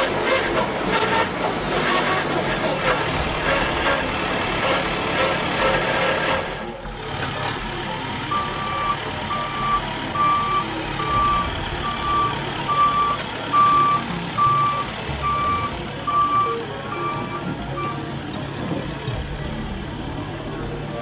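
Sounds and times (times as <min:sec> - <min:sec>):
low tractor engine rumble: 0:00.0 - 0:21.0
backup alarm beeping: 0:08.2 - 0:18.2.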